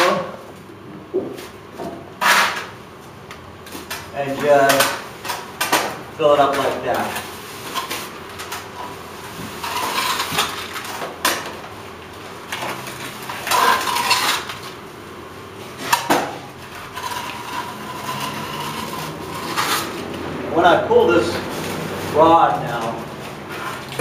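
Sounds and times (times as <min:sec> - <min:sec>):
trowel scraping wet cement: 0:16.6 - 0:20.0.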